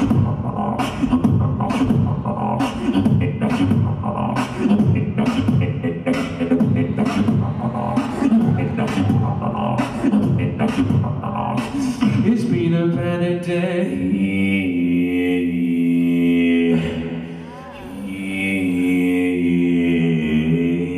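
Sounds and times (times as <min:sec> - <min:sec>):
beatboxing through a microphone: 0:00.0 - 0:14.0.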